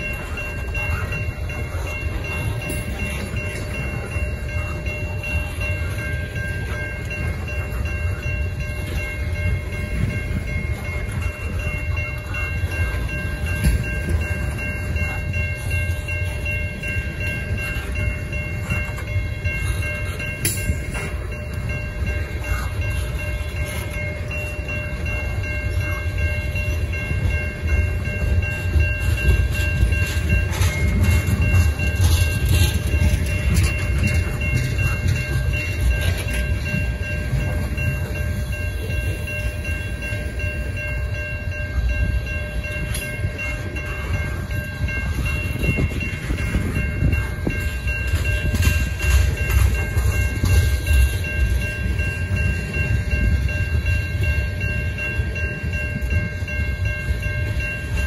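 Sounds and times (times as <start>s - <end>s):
freight train rumbling on rails: 0.0s - 58.0s
steady high-pitched tones: 0.0s - 58.0s.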